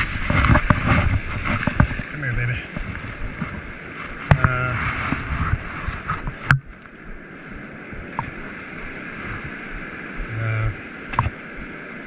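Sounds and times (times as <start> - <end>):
ocean surf fizzing over sand: 0.0 - 12.0
wind on microphone: 0.0 - 12.0.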